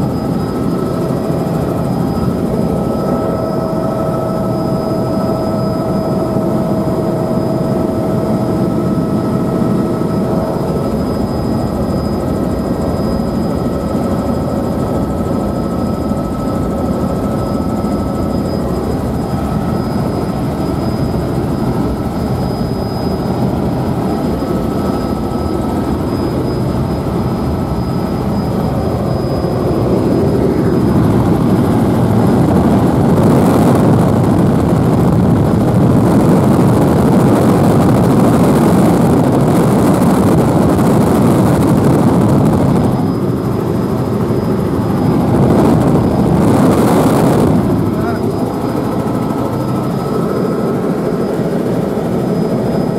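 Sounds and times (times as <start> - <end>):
thin high tone: 0.0 - 32.0, 42.7 - 52.9
helicopter engine and rotor drone: 0.0 - 52.9.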